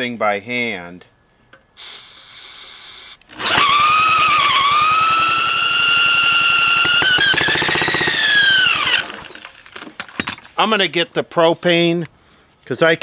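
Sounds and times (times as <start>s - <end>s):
aerosol spray hiss: 1.8s - 3.2s
power drill whining: 3.2s - 10.0s.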